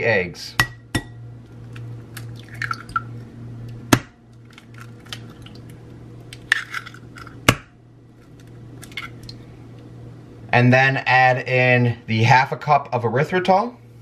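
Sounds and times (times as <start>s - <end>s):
eggshell cracking: 1.5s - 3.1s, 3.9s - 9.4s
shells crackling apart: 4.3s - 7.6s, 8.2s - 9.4s.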